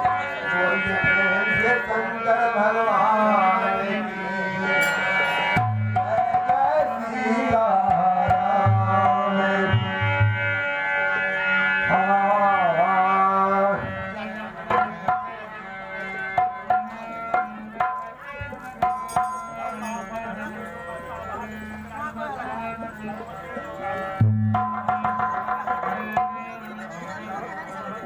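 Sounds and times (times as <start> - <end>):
harmonium playing: 0.0 - 28.0
hand drum strokes: 22.6 - 26.9.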